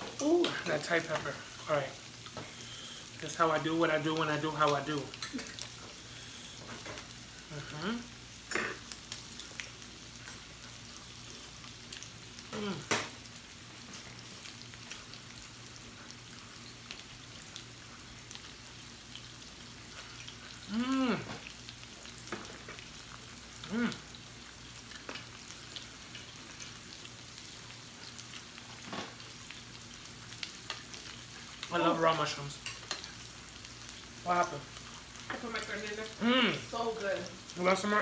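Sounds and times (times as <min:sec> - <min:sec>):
meat sizzling on a grill: 0:00.0 - 0:38.0
person humming mmm: 0:07.4 - 0:08.8, 0:12.5 - 0:13.0, 0:20.6 - 0:21.4, 0:23.6 - 0:24.2.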